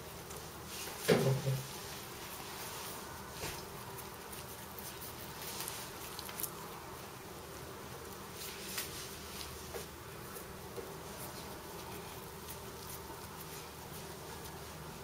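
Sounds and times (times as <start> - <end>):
hands rubbing dough: 0.0 - 6.9, 8.0 - 15.0.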